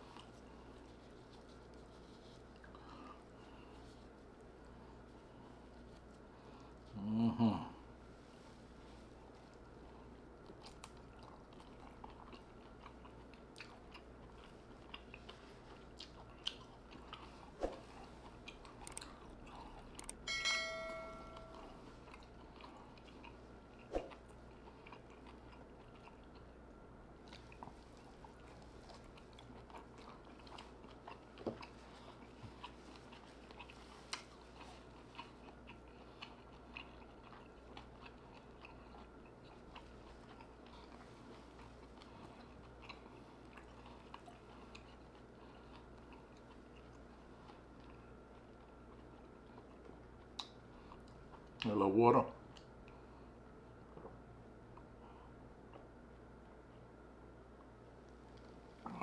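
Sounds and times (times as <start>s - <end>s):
close chewing and biting: 8.9s - 20.2s, 21.9s - 51.7s
short ringing chime: 20.3s - 21.8s.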